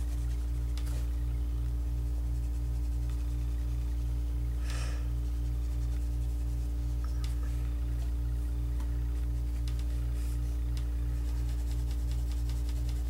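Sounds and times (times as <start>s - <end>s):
pencil scratching on paper: 0.0s - 1.2s, 2.0s - 4.2s, 5.2s - 7.0s, 11.2s - 13.0s
low throbbing hum: 0.0s - 13.0s.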